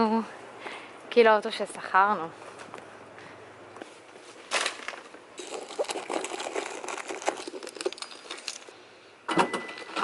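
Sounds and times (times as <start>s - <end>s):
rummaging through a handbag: 4.5s - 8.8s.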